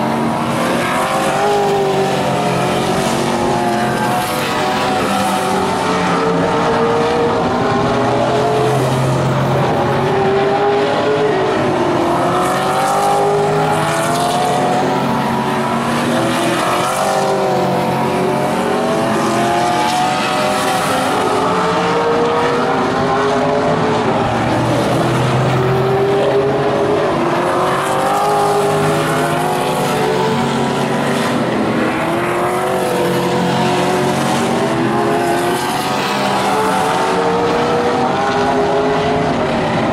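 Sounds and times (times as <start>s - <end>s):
race car engines revving: 0.0s - 39.9s.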